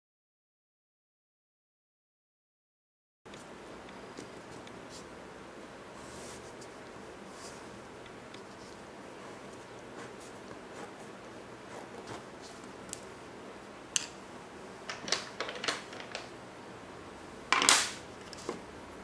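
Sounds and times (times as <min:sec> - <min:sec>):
scrape on desk: 0:06.0 - 0:06.6.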